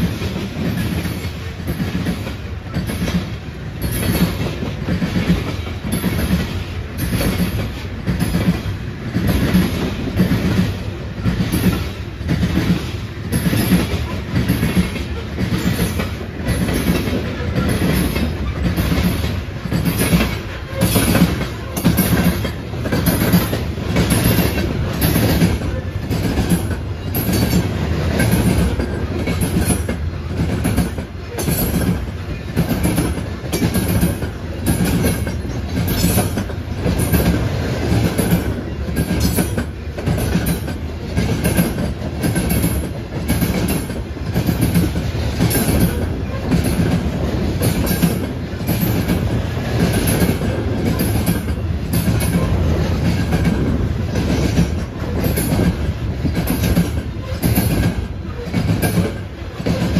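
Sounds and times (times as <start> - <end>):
train rolling rumble: 0.0 - 59.9
train wheels clacking over rail joints: 0.0 - 59.9.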